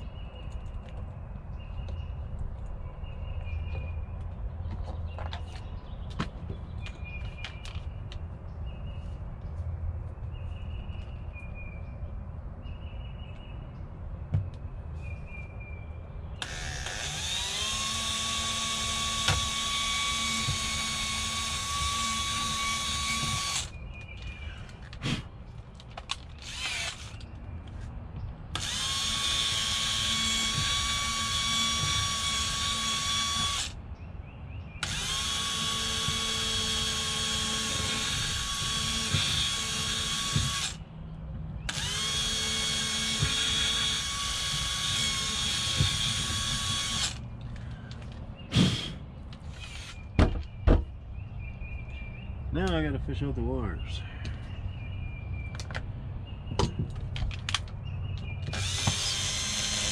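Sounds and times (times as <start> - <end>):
cordless drill running: 16.4 - 23.7, 26.4 - 27.2, 28.6 - 33.8, 34.8 - 40.8, 41.7 - 47.2, 49.6 - 50.0, 58.5 - 59.9.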